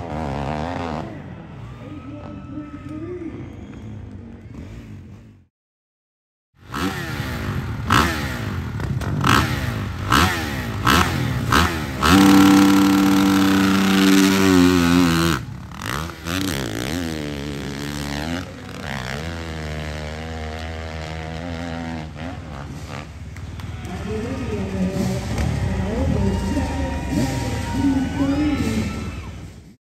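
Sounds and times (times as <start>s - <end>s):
dirt bike engine revving: 9.2s - 23.0s.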